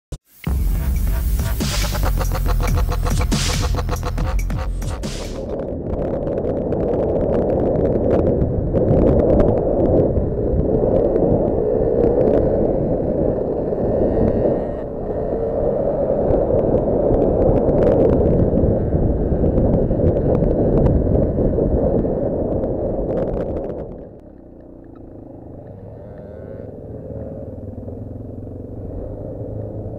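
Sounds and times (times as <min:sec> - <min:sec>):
wind buffeting camera: 0:05.3 - 0:29.9
quad engine rumble: 0:08.2 - 0:22.3, 0:23.3 - 0:29.9.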